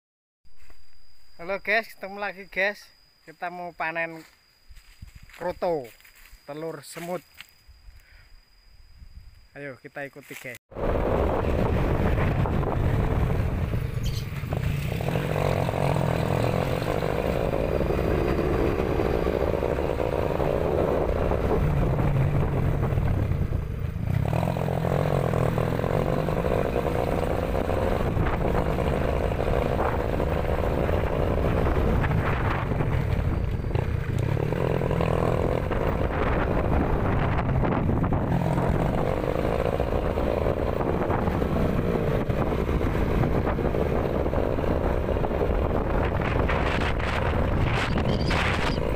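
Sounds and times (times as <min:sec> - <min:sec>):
small motorcycle engine running: 0:10.8 - 0:48.9.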